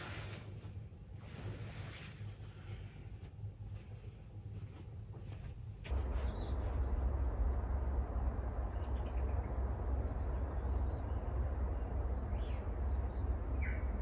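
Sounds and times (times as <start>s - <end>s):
wind rumble on microphone: 5.9s - 14.0s
faint bird chirps: 6.0s - 7.4s, 8.5s - 14.0s.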